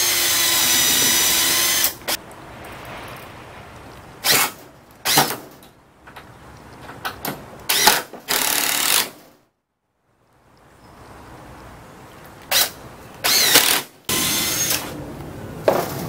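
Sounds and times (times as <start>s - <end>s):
cordless drill drilling into wood: 0.0s - 2.2s, 7.7s - 9.2s, 12.5s - 14.9s.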